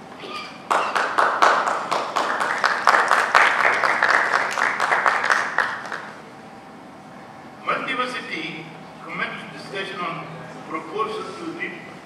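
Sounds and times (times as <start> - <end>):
audience applauding: 0.7 - 6.2.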